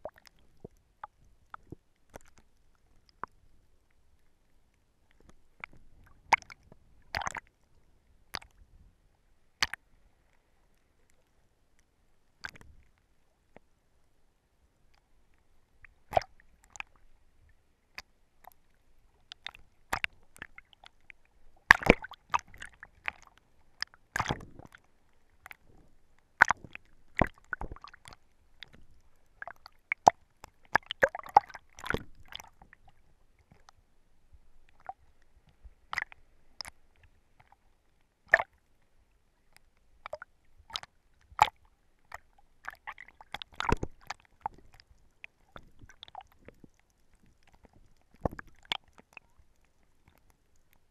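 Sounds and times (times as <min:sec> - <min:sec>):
water sloshing and splashing: 0:05.2 - 0:07.5, 0:19.2 - 0:33.8, 0:40.0 - 0:50.8.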